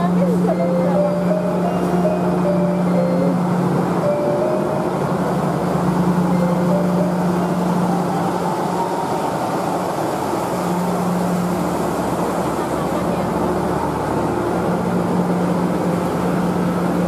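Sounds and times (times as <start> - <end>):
train wheels on rails: 0.0 - 17.0.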